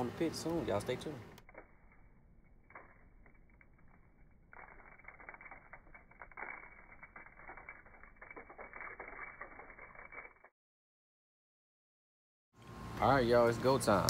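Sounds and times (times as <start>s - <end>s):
seasoning shaker rattling: 1.5s - 10.5s.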